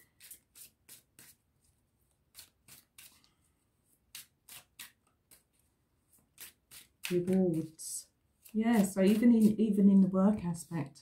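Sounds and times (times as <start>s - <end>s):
cards being shuffled: 0.1s - 3.4s, 8.4s - 9.6s.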